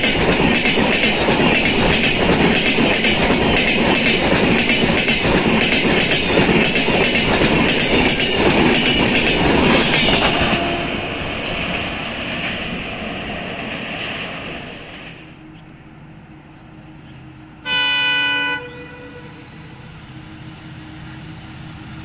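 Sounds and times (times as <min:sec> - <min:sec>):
train wheels clickety-clack: 0:00.0 - 0:15.7.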